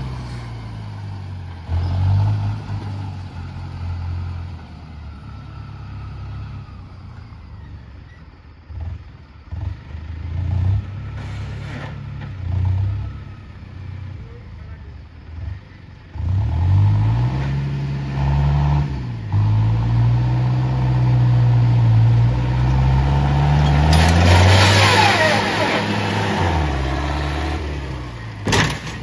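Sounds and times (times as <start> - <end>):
tractor diesel engine revving: 0.0 - 7.2, 15.2 - 29.0.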